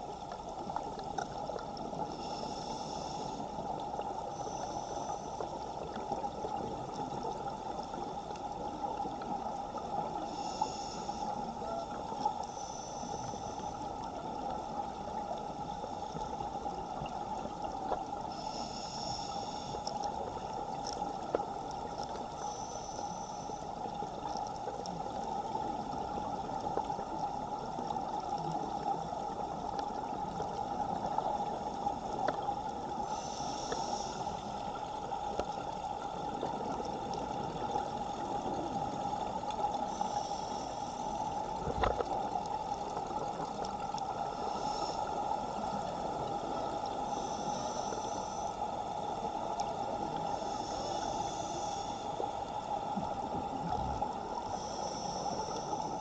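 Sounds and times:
underwater water rushing: 0.0 - 56.0
scuba regulator breathing hiss: 2.0 - 3.7, 4.3 - 5.6, 10.2 - 11.5, 12.4 - 13.8, 18.2 - 20.0, 22.3 - 23.8, 33.0 - 34.8, 39.8 - 41.3, 44.3 - 49.0, 50.2 - 52.4, 54.4 - 56.0.

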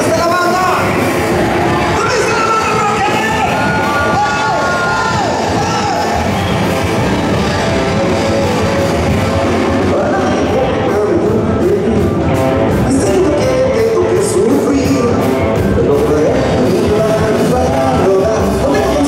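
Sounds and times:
electric guitar: 0.0 - 19.0
man singing into a microphone: 9.8 - 19.0.

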